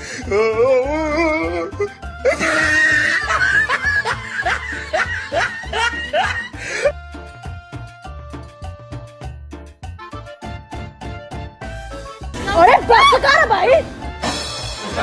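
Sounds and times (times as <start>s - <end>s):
comic background music: 0.0s - 15.0s
laughter: 2.3s - 6.6s.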